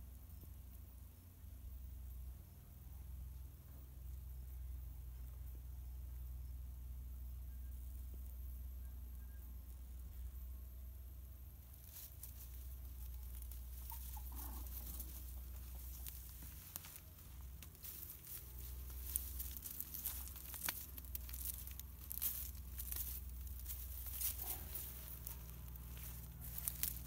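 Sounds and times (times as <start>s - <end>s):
footsteps crackling through dry grass: 11.5s - 27.0s.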